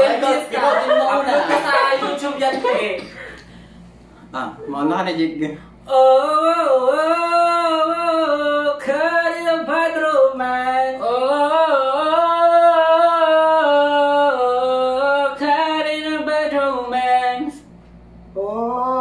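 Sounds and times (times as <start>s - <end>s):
person singing unaccompanied: 5.9s - 17.6s.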